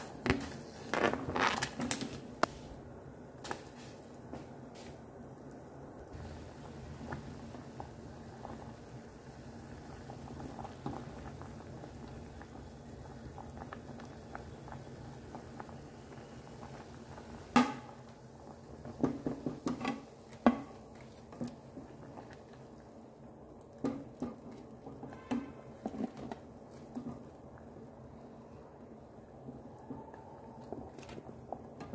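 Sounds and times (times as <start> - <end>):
water boiling in a saucepan: 0.0 - 31.9
spoon knocking and scraping a pan: 19.0 - 20.8.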